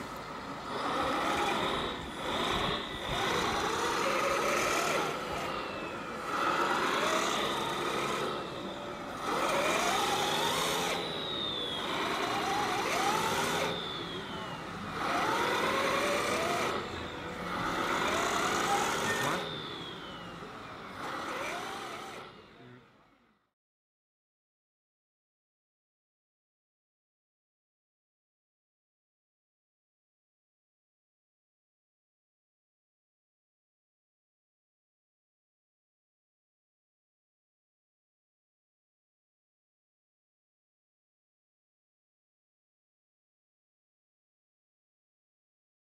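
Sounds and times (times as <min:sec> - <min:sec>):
toy truck motor revving: 0:00.0 - 0:23.3.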